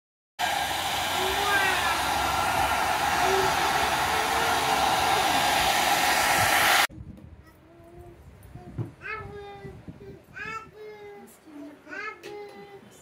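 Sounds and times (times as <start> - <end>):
hair dryer blowing: 0.4 - 6.9.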